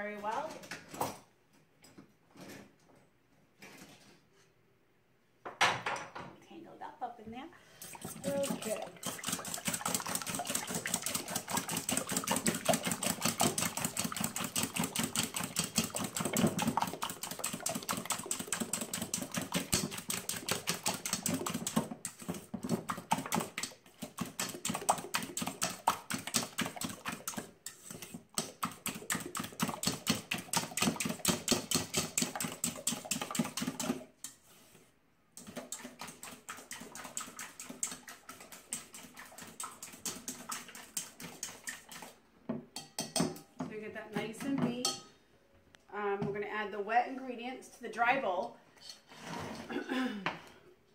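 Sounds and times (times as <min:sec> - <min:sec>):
whisk beating in metal bowl: 0:07.8 - 0:34.4, 0:35.4 - 0:42.2.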